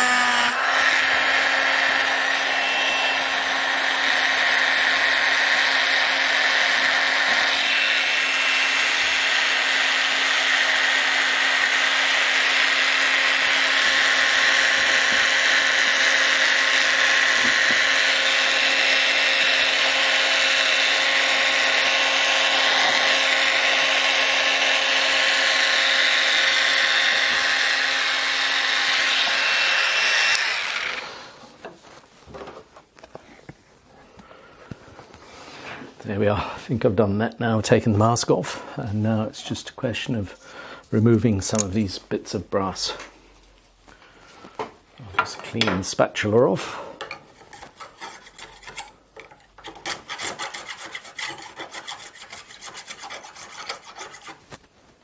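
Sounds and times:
rotary tool grinding with whine: 0.0s - 31.8s, 47.4s - 54.4s.

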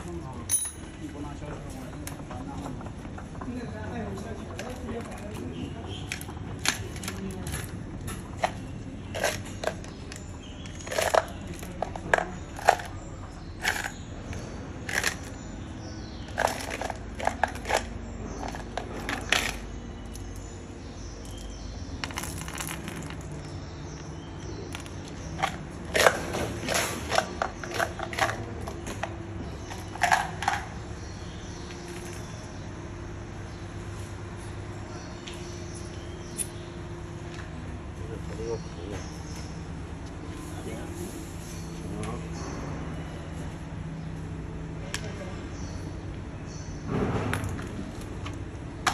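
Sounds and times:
ball bearings clinking: 8.4s - 15.4s.

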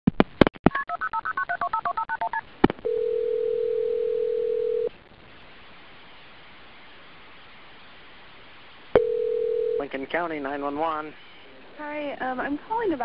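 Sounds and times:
steady telephone line tone: 2.8s - 4.9s, 9.0s - 10.0s
telephone keypad tones: 2.9s - 4.9s
faint line hiss: 4.2s - 12.4s.

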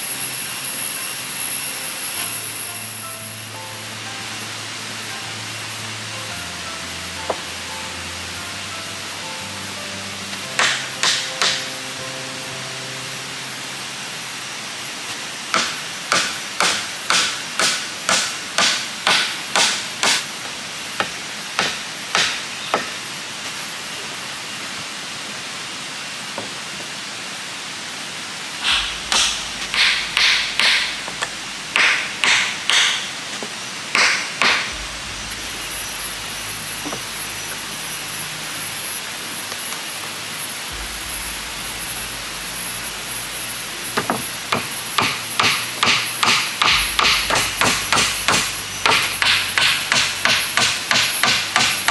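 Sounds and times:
steady high-pitched tone: 0.0s - 19.6s, 20.3s - 51.9s
hammer driving nails into wood: 10.6s - 11.6s, 15.6s - 20.3s, 28.6s - 31.2s, 31.8s - 33.1s, 33.9s - 34.7s, 44.0s - 51.9s.

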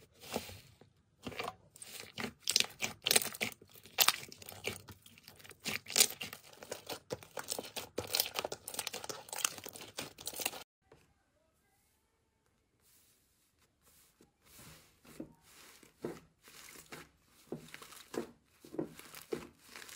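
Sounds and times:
hands squishing slime: 1.2s - 10.6s, 15.1s - 19.9s.

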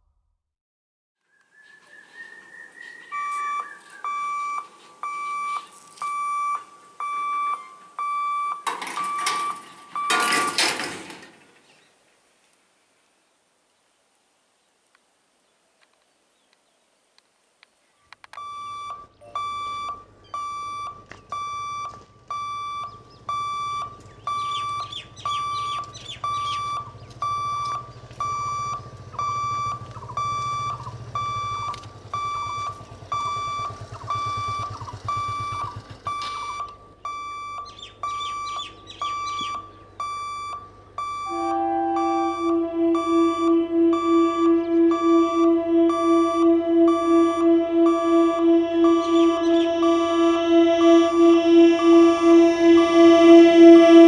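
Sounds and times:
level crossing warning beeps: 3.1s - 10.9s, 18.3s - 54.0s
low steady hum: 39.0s - 54.0s.

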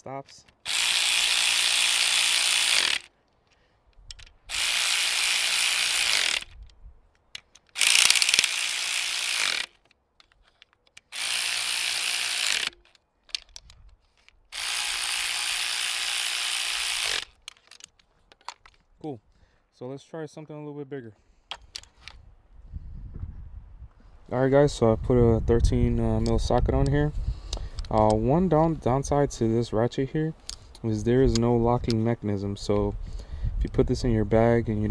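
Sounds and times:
cordless electric ratchet running: 0.6s - 3.1s, 4.1s - 6.8s, 7.7s - 9.8s, 11.0s - 13.7s, 14.5s - 17.8s.

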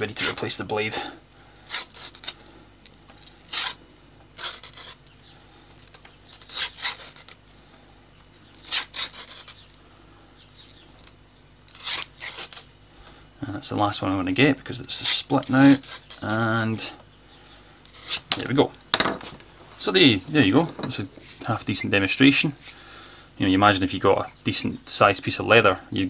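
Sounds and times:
blade slicing leather: 6.4s - 7.3s.

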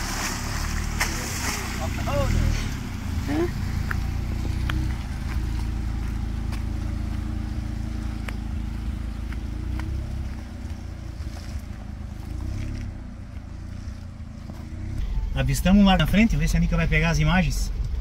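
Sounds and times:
suv engine rumbling: 0.0s - 18.0s
tyres on dirt trail: 0.0s - 18.0s
stones ticking: 3.8s - 11.0s.

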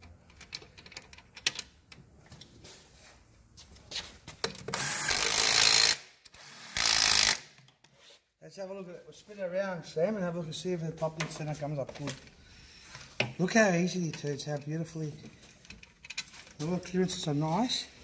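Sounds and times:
pneumatic air ratchet: 4.7s - 7.5s.

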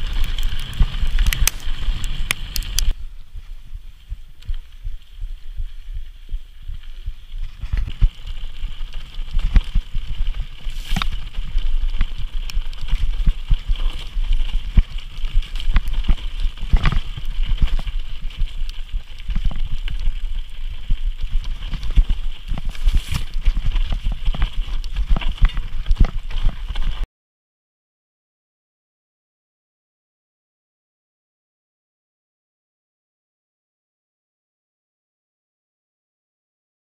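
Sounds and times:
tyre and wind rumble: 0.0s - 27.0s.

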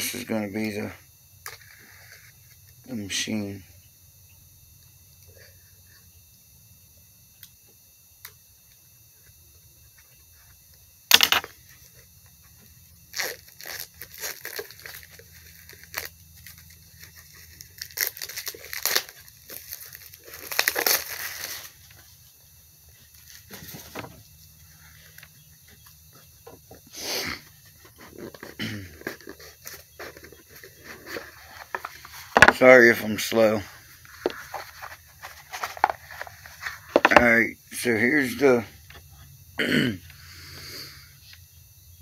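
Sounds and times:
packaging crinkling: 13.1s - 21.9s, 34.2s - 37.2s
cardboard box tearing open: 17.8s - 21.8s.

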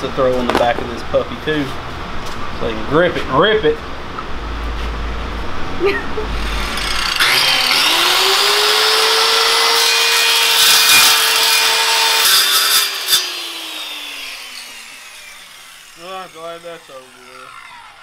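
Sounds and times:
circular saw cutting metal plate: 6.3s - 18.0s.

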